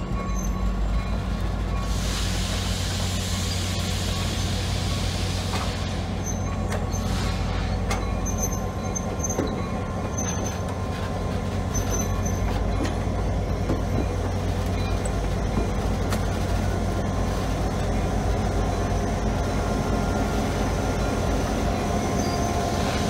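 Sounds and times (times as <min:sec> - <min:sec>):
diesel locomotive low hum: 0:00.0 - 0:23.0
wheels clicking over rail joints: 0:07.8 - 0:16.5
thin wheel squeals: 0:22.1 - 0:22.7.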